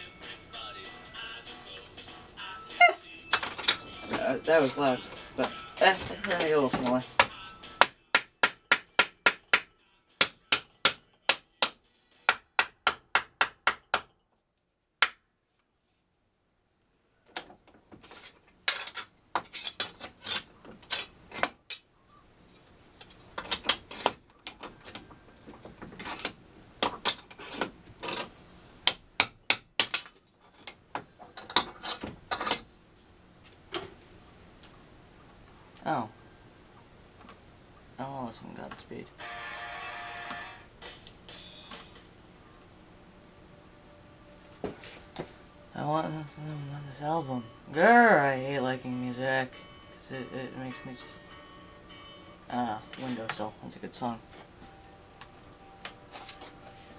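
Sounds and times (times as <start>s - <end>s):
hammer striking metal: 6.8s - 14.1s.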